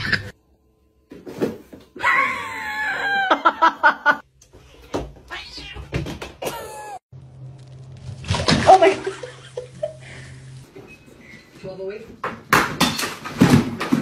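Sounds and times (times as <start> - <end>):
cat meowing: 5.3 - 6.0.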